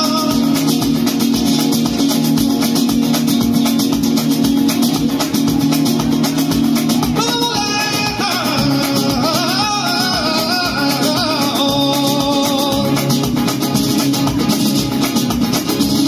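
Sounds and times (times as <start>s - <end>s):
man singing: 0.0s - 1.0s, 7.2s - 13.3s
strummed acoustic guitars: 0.0s - 16.0s.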